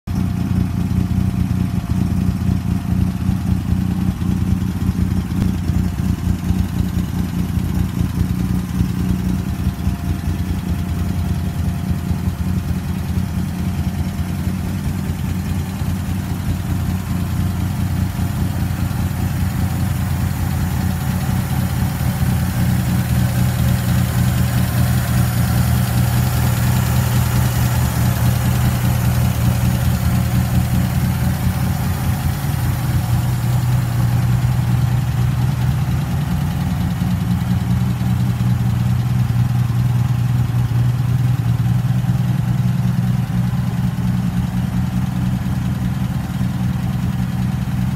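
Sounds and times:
car engine idling: 0.1s - 47.9s.

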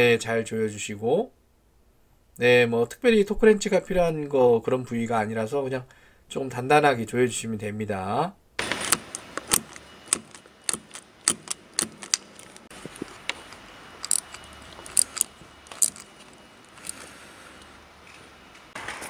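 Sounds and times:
ratchet wrench clicking: 8.8s - 12.7s, 14.0s - 16.0s.

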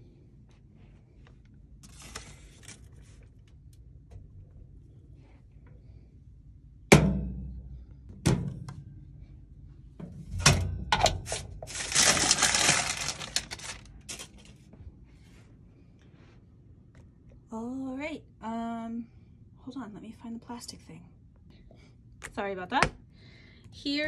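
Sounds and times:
baking paper rustling: 1.8s - 3.4s, 11.2s - 14.7s
metallic knocks on toaster oven: 6.9s - 7.5s.

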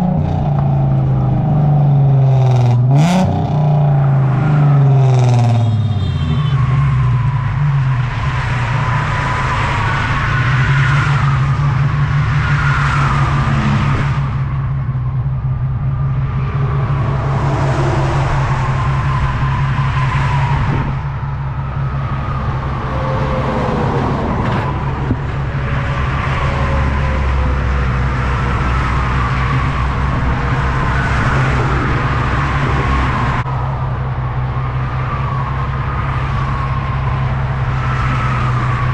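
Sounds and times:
cars passing on highway: 0.0s - 38.9s
wind rumble on microphone: 11.0s - 38.9s.

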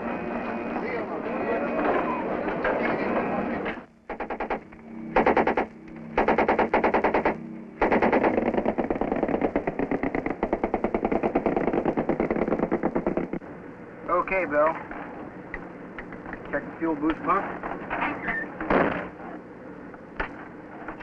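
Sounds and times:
machine gun firing bursts: 4.1s - 13.4s.

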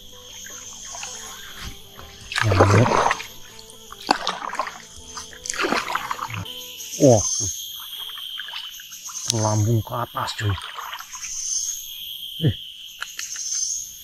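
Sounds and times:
background music: 0.0s - 7.5s
water splashing: 0.0s - 11.5s.

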